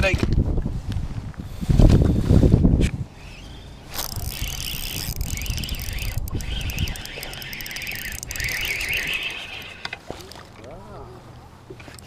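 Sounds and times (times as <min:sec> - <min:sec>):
wind rumble on microphone: 0:00.0 - 0:03.2
fishing reel whirring: 0:03.3 - 0:10.6.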